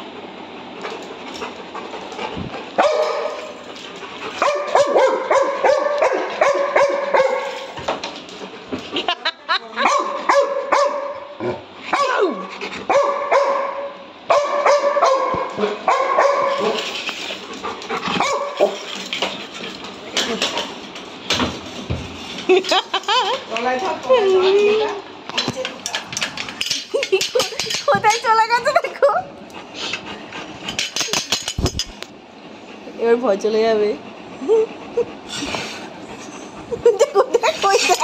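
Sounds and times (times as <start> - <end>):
dog barking: 2.8 - 3.5, 4.4 - 7.6, 9.8 - 16.8, 18.2 - 18.8
dog yelping: 4.4 - 7.6, 11.9 - 16.8, 18.1 - 18.8.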